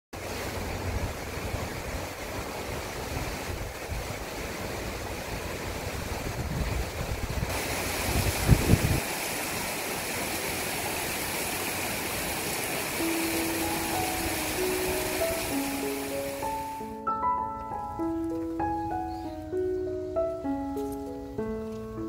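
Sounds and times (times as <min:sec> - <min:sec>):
sea washing over rocks: 0:00.2 - 0:16.8
wind buffeting microphone: 0:05.8 - 0:09.2.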